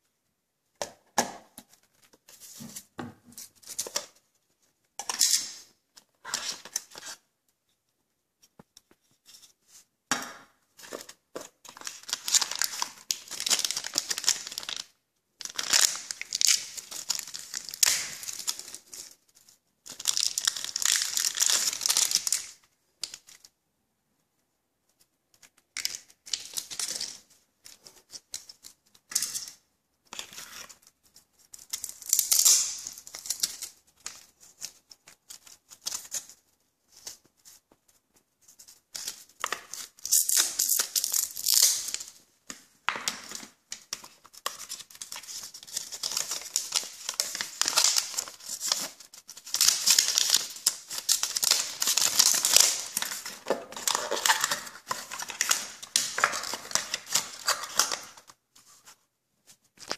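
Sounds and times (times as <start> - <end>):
packaging rustling: 10.8 - 23.4, 42.9 - 59.0.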